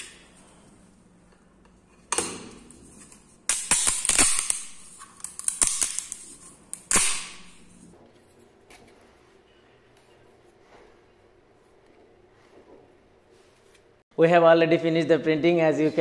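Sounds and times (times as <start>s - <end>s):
plastic cracking and snapping: 3.5s - 6.2s.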